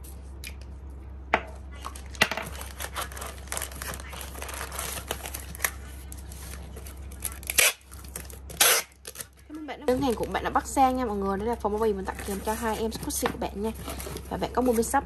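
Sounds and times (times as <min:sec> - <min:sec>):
plastic and paper rustling: 0:01.8 - 0:15.0.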